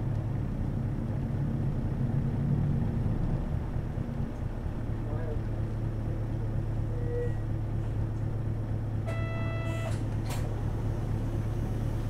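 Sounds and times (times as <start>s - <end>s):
bus diesel engine idling: 0.0s - 12.0s
electronic buzzer tone: 9.1s - 10.0s
short electronic beep: 9.1s - 10.0s.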